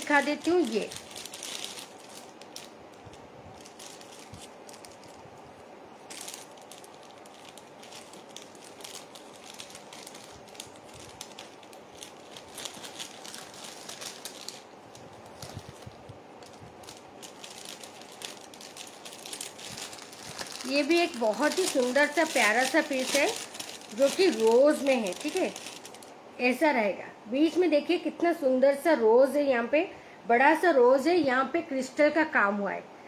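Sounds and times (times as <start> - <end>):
plastic packaging crinkling: 0.0 - 26.2.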